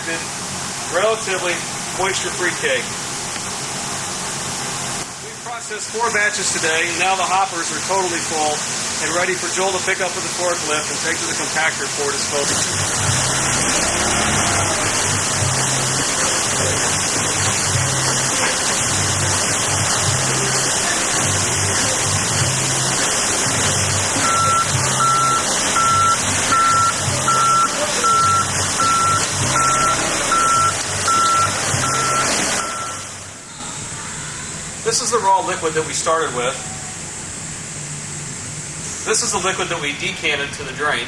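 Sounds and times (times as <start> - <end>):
forklift engine running: 12.0 - 33.9
reversing alarm beeps: 24.2 - 33.1.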